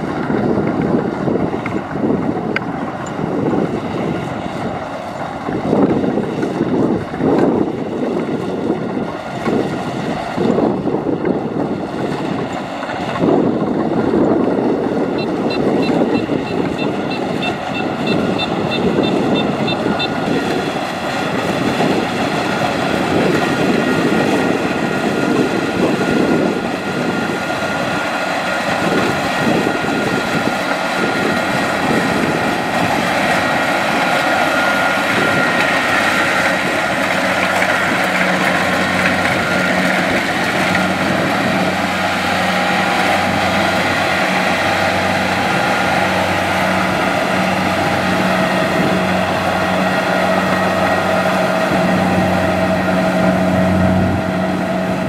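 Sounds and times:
combine harvester drone: 0:00.0 - 0:55.0.

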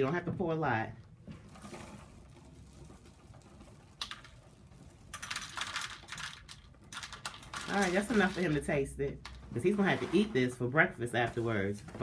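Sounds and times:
cereal pouring into plastic bowl: 0:05.1 - 0:08.7.

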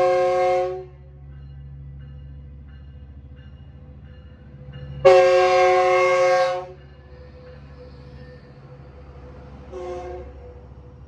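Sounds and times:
train horn: 0:00.0 - 0:01.0, 0:05.0 - 0:06.8, 0:09.7 - 0:10.6
train rumbling past: 0:00.0 - 0:11.0.

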